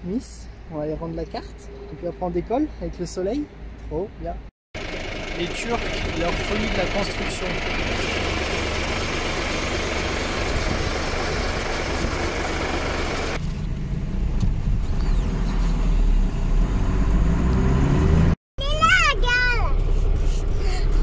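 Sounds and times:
road noise: 0.0 - 21.0
truck engine: 4.8 - 21.0.

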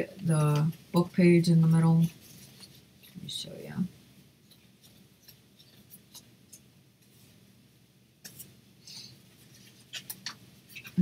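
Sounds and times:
paper booklet rustling: 1.9 - 3.5, 4.5 - 6.6, 8.2 - 11.0.

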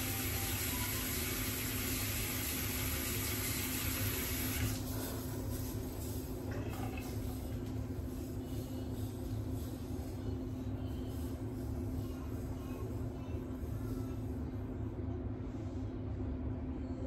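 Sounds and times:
water running from a tap: 0.0 - 4.8
steady low hum: 0.0 - 17.0.

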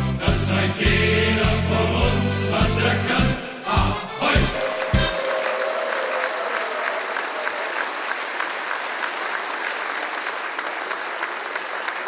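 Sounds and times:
audience applauding: 4.3 - 12.0.

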